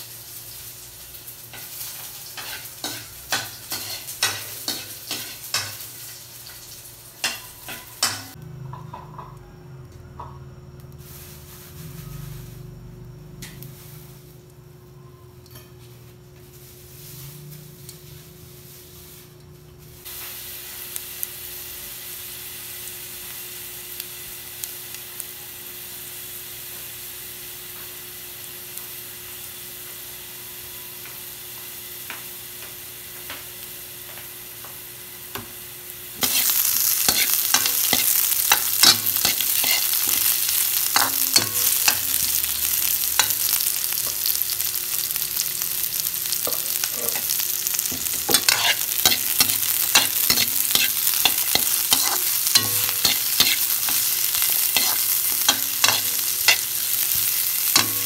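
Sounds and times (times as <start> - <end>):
garlic sizzling in oil: 0.0 - 9.2, 10.8 - 14.7, 15.8 - 58.0
metal spatula scraping a wok: 1.5 - 5.9, 36.2 - 45.2, 45.9 - 58.0.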